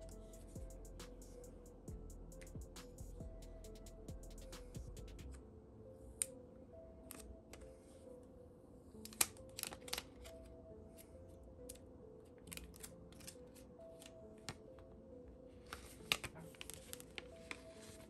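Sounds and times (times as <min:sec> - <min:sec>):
soft background music: 0:00.0 - 0:18.0
plastic film peeling crackles: 0:09.0 - 0:10.4, 0:12.4 - 0:14.6, 0:15.7 - 0:18.0.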